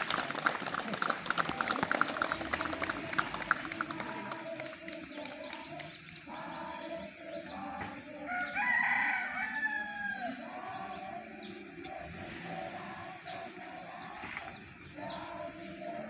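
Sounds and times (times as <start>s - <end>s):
faint singing voices: 0.0s - 16.0s
rooster crowing: 8.2s - 10.5s.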